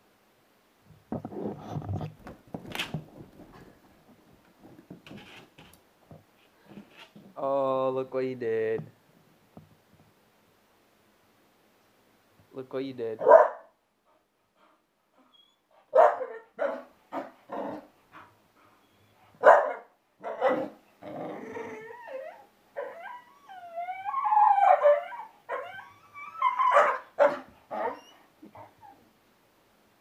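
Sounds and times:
puppy barking: 13.2 - 13.7, 15.9 - 17.3, 19.4 - 20.8, 26.7 - 28.0
puppy howl-like whine: 21.2 - 27.1.

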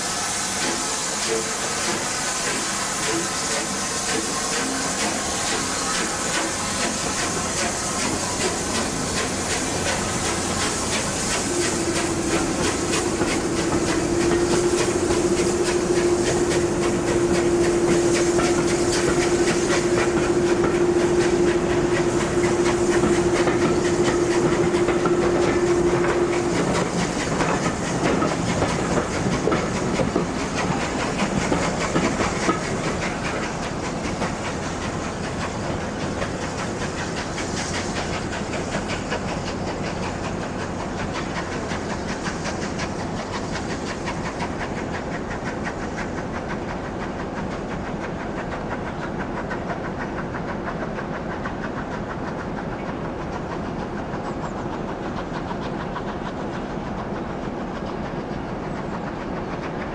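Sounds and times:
steam hissing: 0.0 - 59.9
train wheels clicking on rail joints: 0.0 - 59.9
steady whistle note: 11.6 - 27.0.

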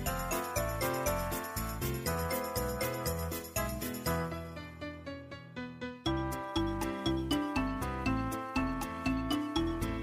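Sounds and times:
bouncy plucked tune: 6.1 - 10.0.

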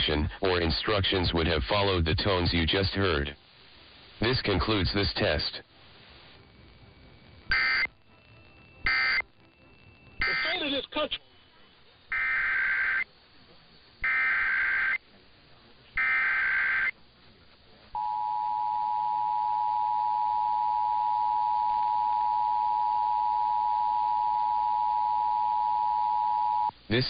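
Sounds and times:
digital data bursts: 4.2 - 13.2, 13.8 - 15.1, 16.0 - 17.0
two-tone attention signal: 7.5 - 11.0.

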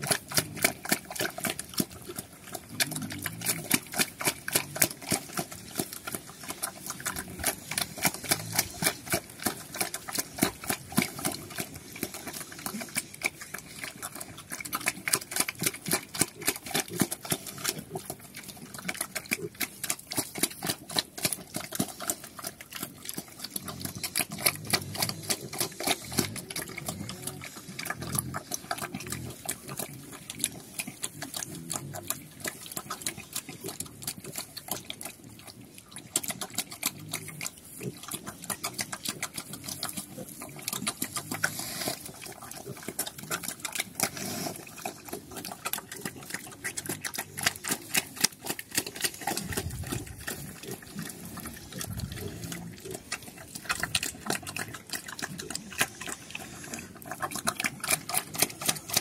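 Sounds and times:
pig grunts: 0.0 - 59.0
pig slurping and chomping: 0.0 - 59.0.

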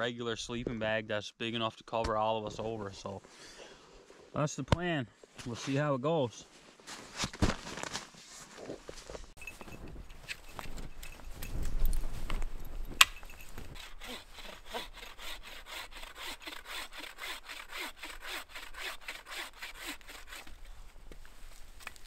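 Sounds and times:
saw cutting wood: 13.8 - 20.6.

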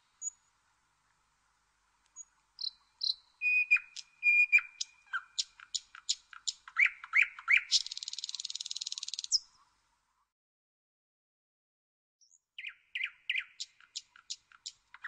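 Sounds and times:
nightingale singing: 0.0 - 0.5, 2.1 - 9.7, 12.2 - 15.0.

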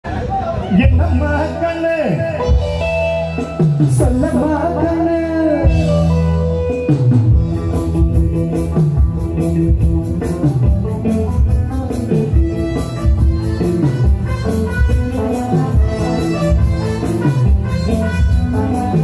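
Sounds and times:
live band music: 0.1 - 19.0
man singing: 0.8 - 6.4, 9.6 - 19.0.

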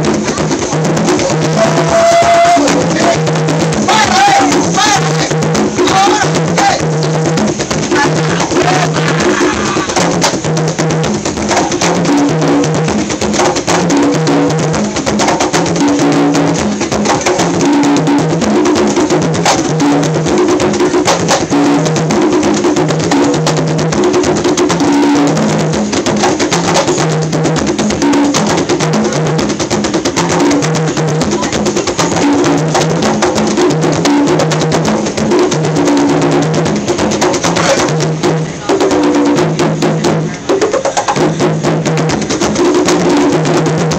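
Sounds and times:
conga drums playing: 0.0 - 43.9.

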